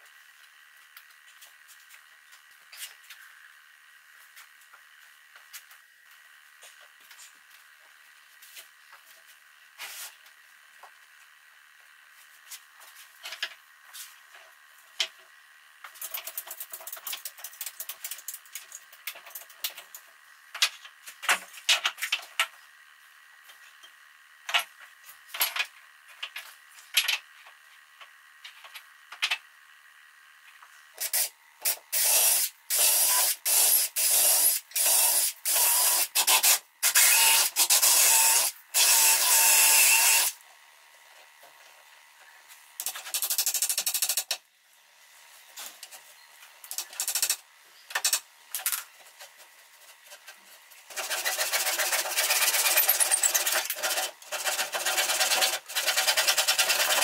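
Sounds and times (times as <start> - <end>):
sandpaper rasping on wood: 50.9 - 57.0.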